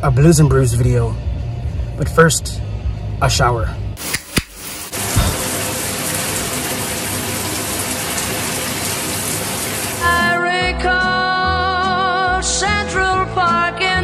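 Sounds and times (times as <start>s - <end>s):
music: 0.0s - 4.3s, 10.0s - 14.0s
shower water spray hiss: 4.0s - 10.1s.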